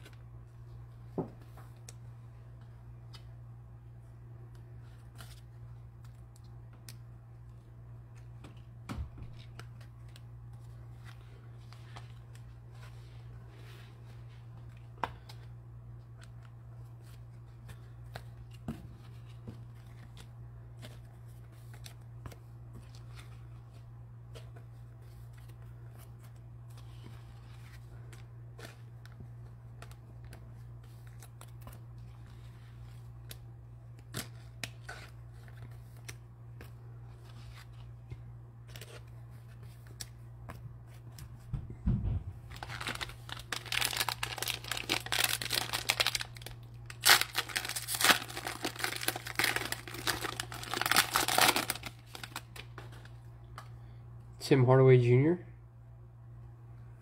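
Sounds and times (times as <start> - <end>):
steady low hum: 0.0 - 57.0
low thump: 41.5 - 42.4
plastic wrapper tearing and crinkling: 42.5 - 52.7.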